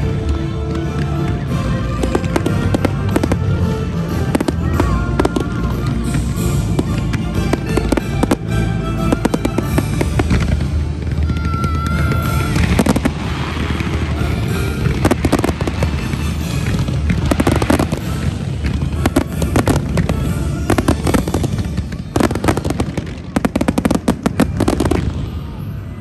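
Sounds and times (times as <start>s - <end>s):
fireworks bangs: 0.0s - 26.0s.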